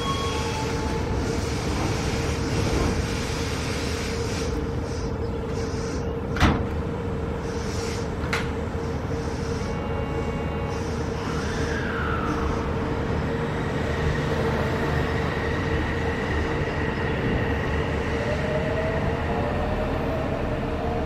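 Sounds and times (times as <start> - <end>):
electric train equipment hum: 0.0 - 21.0.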